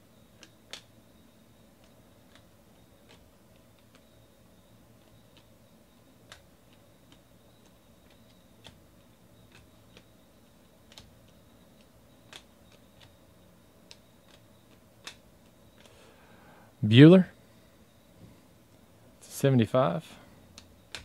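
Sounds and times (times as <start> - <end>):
cards clicking: 0.4 - 0.9, 1.8 - 4.1, 6.2 - 10.1, 10.8 - 13.2, 13.8 - 16.0, 20.5 - 21.0.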